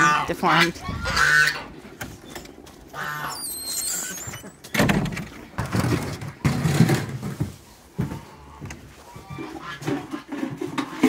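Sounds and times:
door hinge squealing: 2.2 - 5.1.

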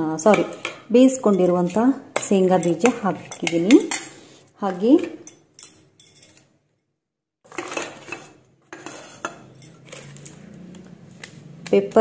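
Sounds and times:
metal spatula scraping steel pan: 7.5 - 10.3.

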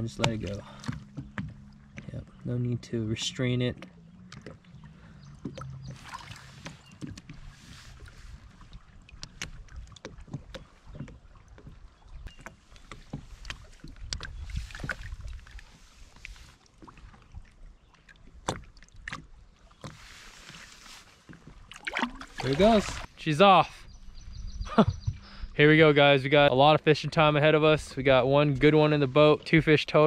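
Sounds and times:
small splashes: 0.0 - 2.1, 3.8 - 23.1
water lapping against a boat: 0.0 - 30.0.

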